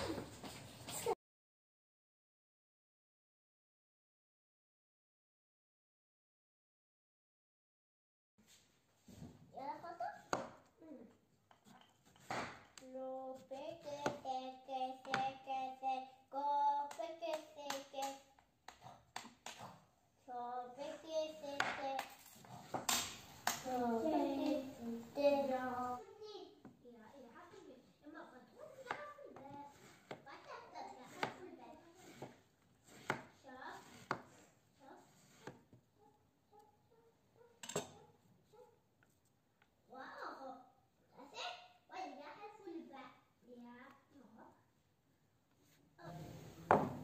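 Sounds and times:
knife knocking on cutting board: 46.7 - 47.0.

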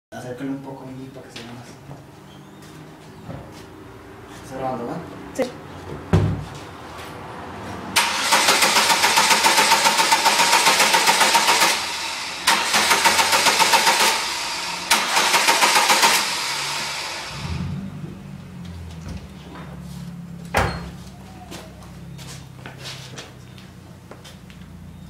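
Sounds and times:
car starter motor cranking: 8.0 - 17.8.

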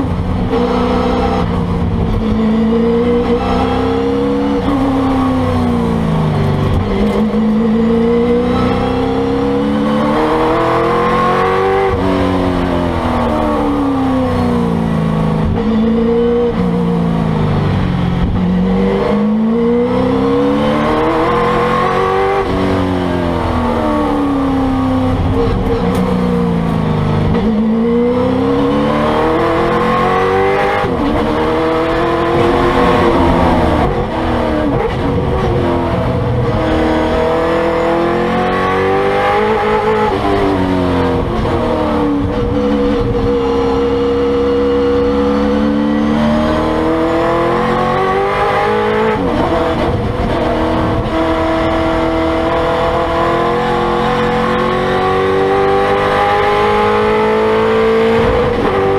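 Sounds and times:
race car engine revving: 0.0 - 17.1, 18.2 - 58.9.

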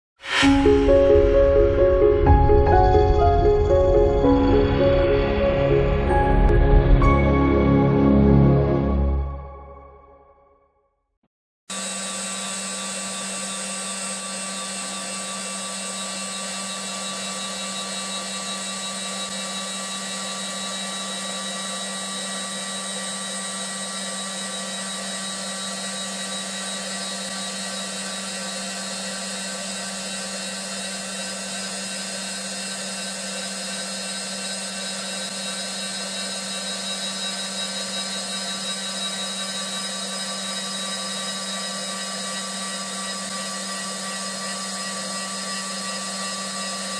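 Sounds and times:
lathe machine whine: 11.7 - 46.9.

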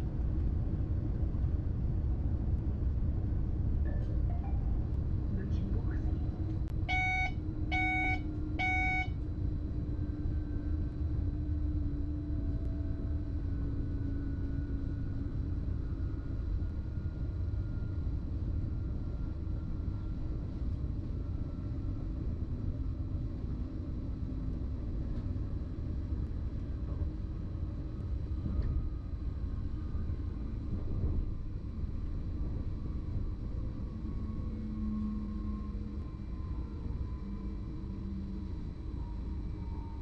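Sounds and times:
train rumble with whine: 0.0 - 40.0
short electronic beep: 6.9 - 9.2.

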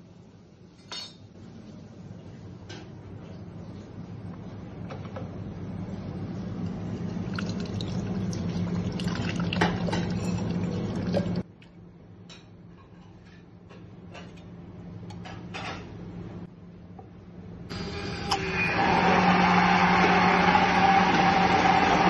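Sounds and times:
oil trickling into glass: 7.3 - 11.4.

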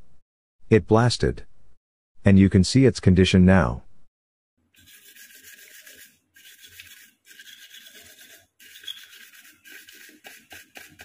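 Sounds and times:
toothbrush scrubbing circuit board: 4.7 - 11.0.

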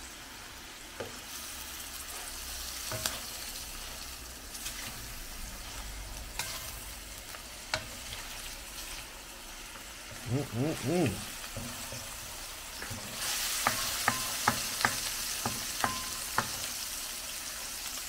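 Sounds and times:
prawns sizzling in hot oil: 0.0 - 18.0
spoon clinking against pan: 13.6 - 16.6.

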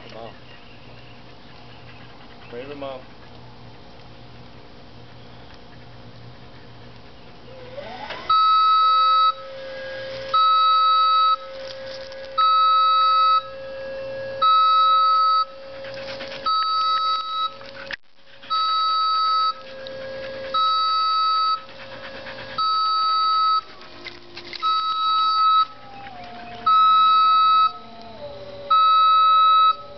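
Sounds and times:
dog howling: 7.4 - 8.3, 19.5 - 29.9
electronic alarm beeping: 8.3 - 9.5, 10.3 - 11.5, 12.4 - 13.7, 14.4 - 15.6, 16.5 - 17.6, 18.5 - 19.6, 20.5 - 21.7, 22.6 - 23.7, 24.6 - 28.0, 28.7 - 29.9.

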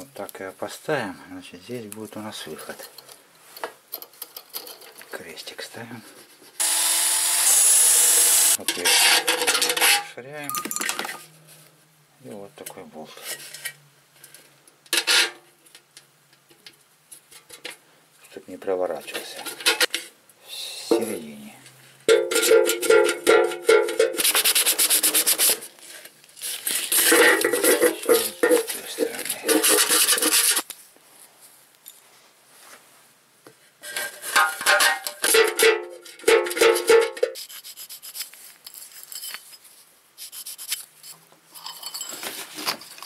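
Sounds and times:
bolt scraping against metal can: 33.8 - 37.6.

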